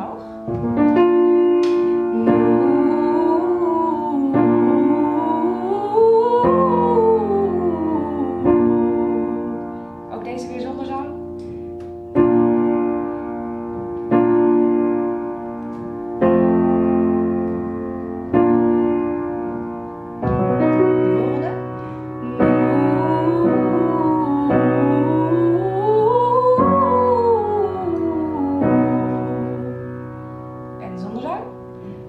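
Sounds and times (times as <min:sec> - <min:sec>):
upright piano chords: 0:00.0 - 0:32.0
woman singing a scale: 0:02.0 - 0:11.3, 0:20.4 - 0:29.8.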